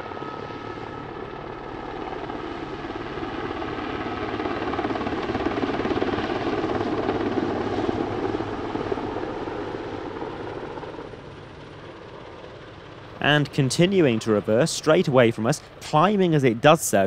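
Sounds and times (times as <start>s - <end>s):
helicopter rotor chop: 0.0s - 17.0s
helicopter turbine engines: 0.0s - 17.0s.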